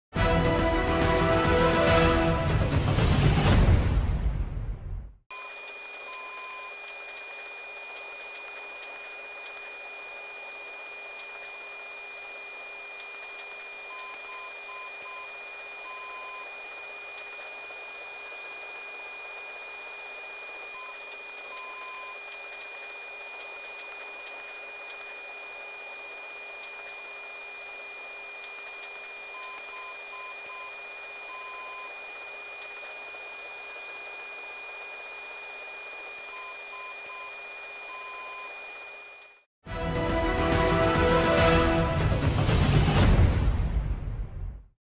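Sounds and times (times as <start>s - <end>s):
short electronic beeps: 5.3s - 11.3s, 36.2s - 39.4s
electronic static hiss: 5.3s - 39.4s
high whining tones: 5.3s - 39.5s.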